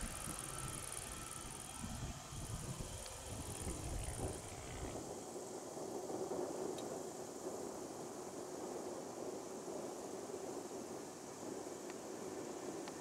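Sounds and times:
distant jet engines idling: 0.0 - 8.1
insects chirping: 0.0 - 13.0
wind rumble on microphone: 0.0 - 13.0.

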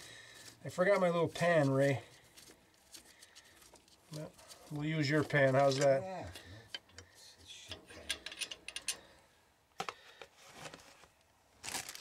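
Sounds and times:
metal parts clicking and scraping: 5.1 - 9.1.

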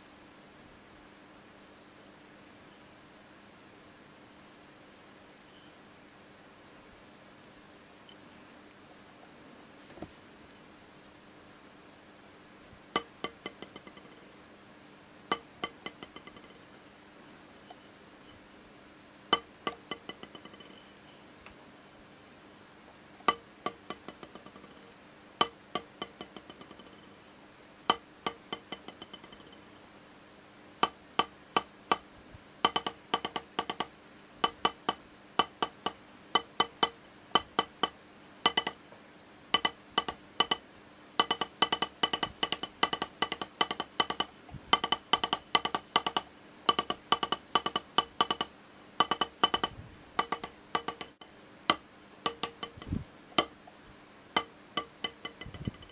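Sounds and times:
drumstick striking practice pad: 12.9 - 14.2, 15.3 - 16.6, 19.3 - 20.8, 23.2 - 24.8, 25.4 - 27.1, 27.9 - 29.6, 30.8 - 38.8, 39.5 - 40.6, 41.2 - 55.9.

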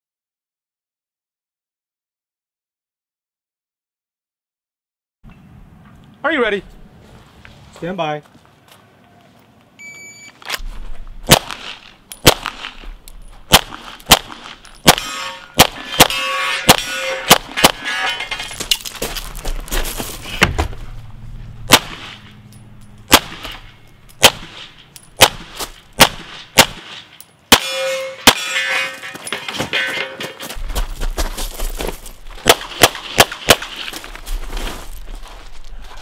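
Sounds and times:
pistol shots: 11.3 - 12.8, 13.5 - 17.9, 21.7 - 22.4, 23.1 - 28.6, 32.4 - 33.9
steel targets ringing: 14.7 - 18.7, 27.5 - 30.6.

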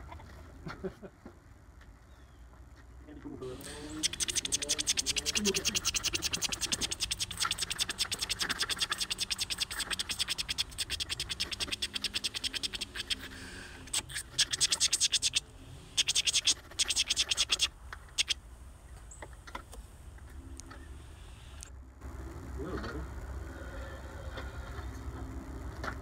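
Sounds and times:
blade scraping ceramic pot: 3.6 - 15.4.

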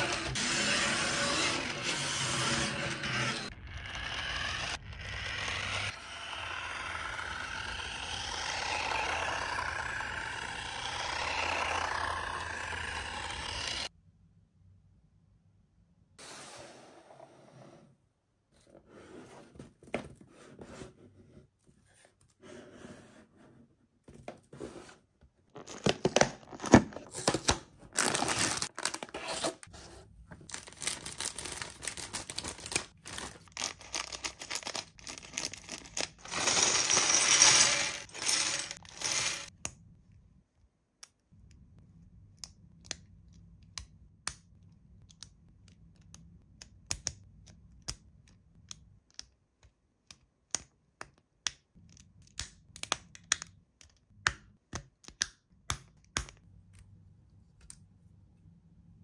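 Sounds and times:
packaging tearing and crinkling: 25.6 - 29.5, 30.4 - 39.5.

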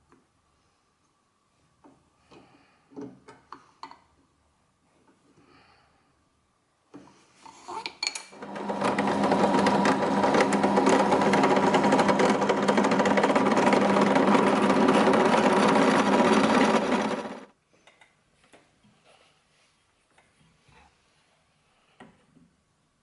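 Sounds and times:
drill press whirring: 8.3 - 17.5.

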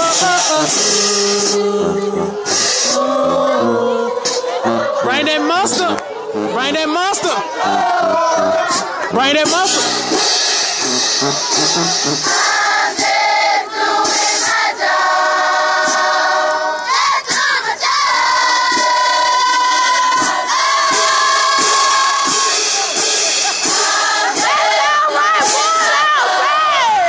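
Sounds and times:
group singing long notes: 0.0 - 6.6, 7.2 - 27.0
crowd noise: 0.0 - 27.0.

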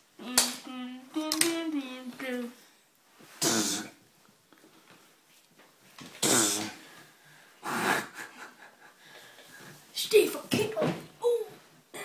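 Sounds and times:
kitten hissing: 3.4 - 4.0.

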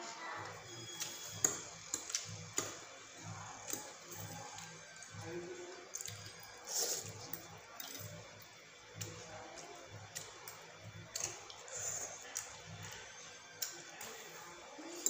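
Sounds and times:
people slurping noodles: 6.0 - 8.1.

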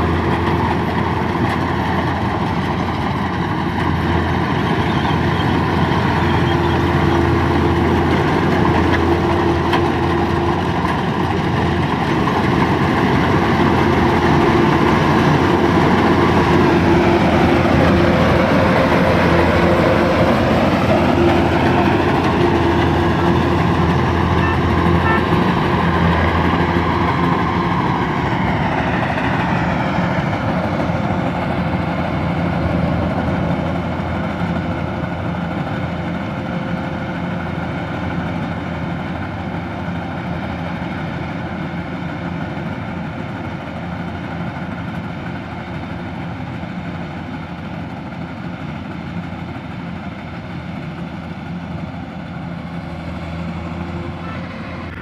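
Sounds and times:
combine harvester droning: 0.0 - 55.0.

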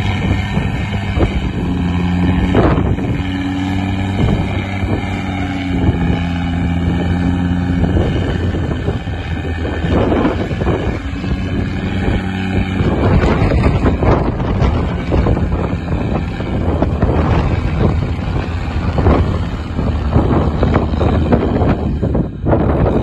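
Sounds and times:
diesel engine under load: 0.0 - 23.0
wind buffeting microphone: 0.0 - 23.0.

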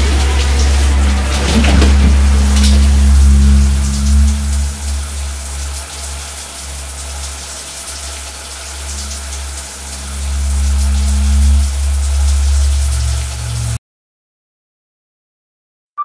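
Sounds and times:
deep sustained drone: 0.0 - 13.8
shower spraying water: 0.0 - 13.8.

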